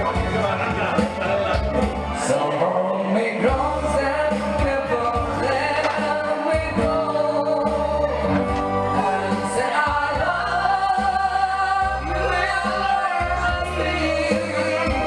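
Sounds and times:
instrumental accompaniment: 0.0s - 15.0s
man singing into microphone: 2.1s - 15.0s.

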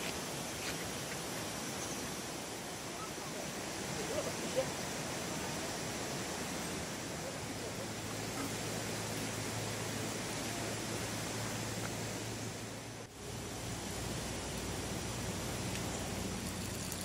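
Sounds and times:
outdoor background hiss: 0.0s - 17.0s
faint distant voice: 6.8s - 9.0s.

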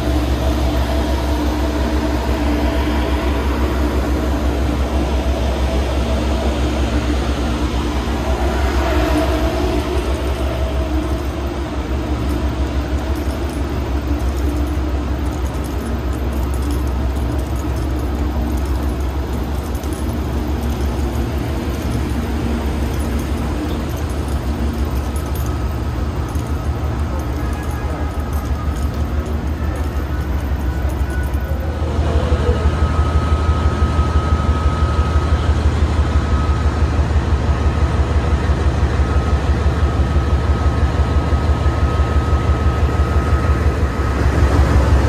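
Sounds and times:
diesel locomotives idling: 0.0s - 45.0s.

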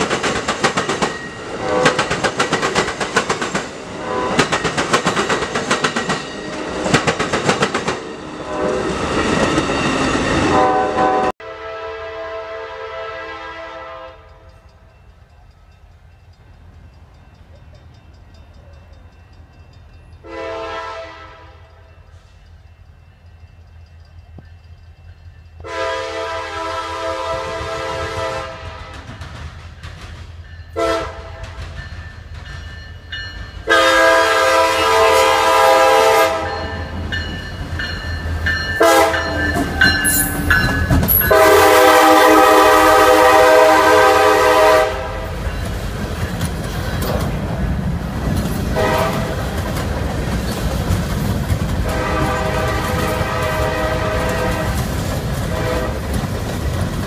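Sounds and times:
wheels clicking over rail joints: 0.0s - 8.0s, 45.2s - 53.4s, 54.0s - 57.0s
train cars rolling: 0.0s - 11.3s, 14.3s - 57.0s
locomotive horn blasts: 1.6s - 2.1s, 10.5s - 14.6s, 20.2s - 21.7s, 25.6s - 29.1s, 30.8s - 31.6s, 33.6s - 36.9s, 38.8s - 45.4s, 48.7s - 49.5s, 51.8s - 54.9s, 55.5s - 56.0s.

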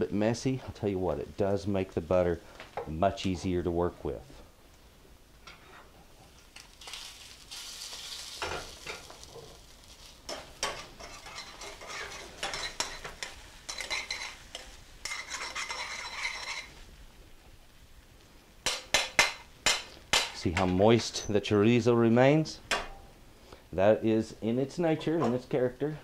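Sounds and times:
fat sizzling: 0.0s - 26.0s
metal tongs scraping a skillet: 5.4s - 16.8s.

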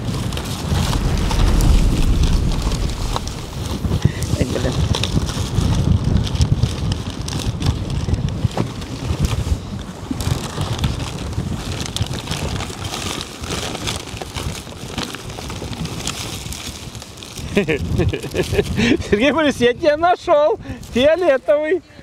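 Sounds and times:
wind buffeting microphone: 0.0s - 6.9s.

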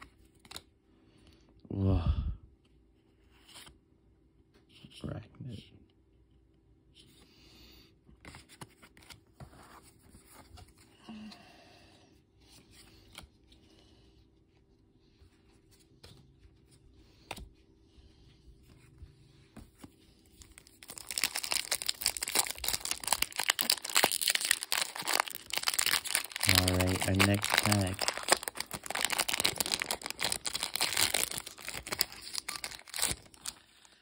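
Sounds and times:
foil wrapper tearing and crinkling: 20.5s - 33.9s.

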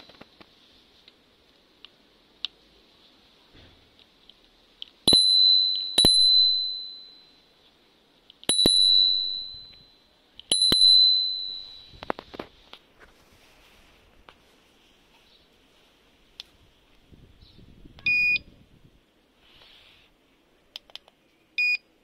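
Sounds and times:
scooter bell ringing: 5.1s - 7.5s, 8.5s - 12.0s.

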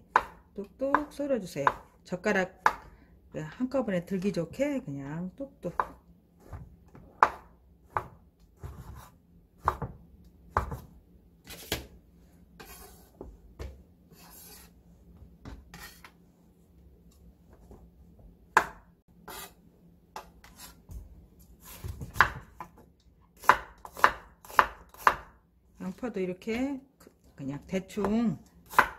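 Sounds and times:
knife chopping on wooden board: 0.0s - 1.9s, 2.6s - 2.9s, 5.7s - 10.9s, 18.5s - 19.5s, 20.2s - 22.8s, 23.4s - 25.3s, 28.0s - 28.9s.

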